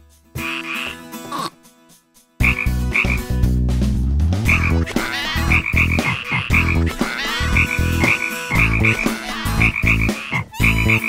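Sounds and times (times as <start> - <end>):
deep frog croaking: 2.4 - 3.2, 4.5 - 11.0.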